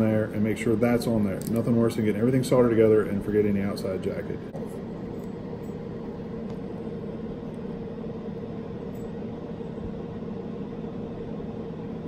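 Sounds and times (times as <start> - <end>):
room hum: 0.0 - 12.0
faint held tone: 4.6 - 11.9.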